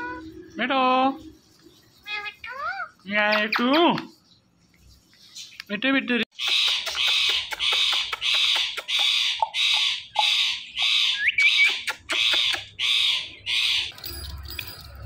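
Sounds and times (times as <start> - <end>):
parrot making raspy kissing sounds: 6.4 - 9.8, 11.5 - 12.8.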